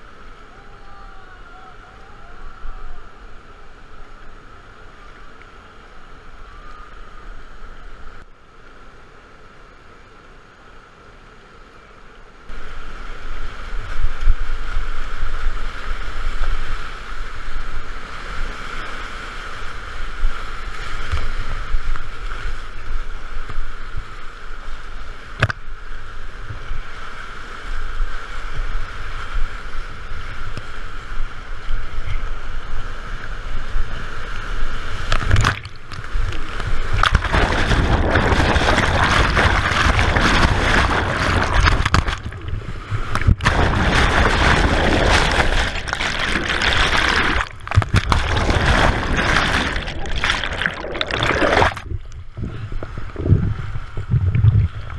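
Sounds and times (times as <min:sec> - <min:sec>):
whitewater rapids rushing and splashing: 0:34.8 - 0:51.8.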